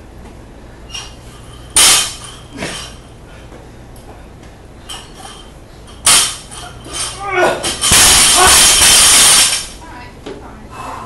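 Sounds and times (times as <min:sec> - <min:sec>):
bar and plates clanking: 0:00.9 - 0:03.0, 0:04.9 - 0:09.8
barbell dropping on rubber platform: 0:01.8 - 0:03.0, 0:06.0 - 0:09.8.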